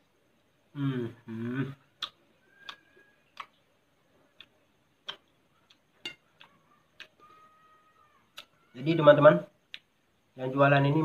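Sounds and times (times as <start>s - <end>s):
metal spoon on glass plate: 6.0s - 6.3s.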